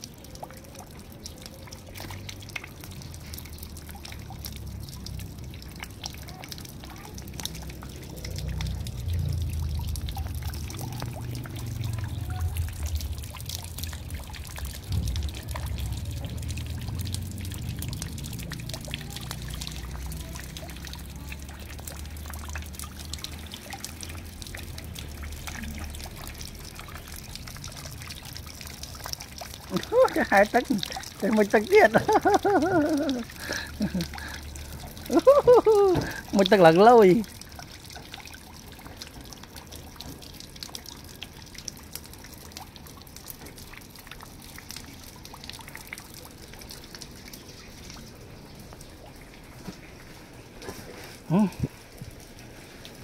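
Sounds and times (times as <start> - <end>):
water splashing into bucket: 0.0 - 53.0
low rumble: 8.8 - 18.8.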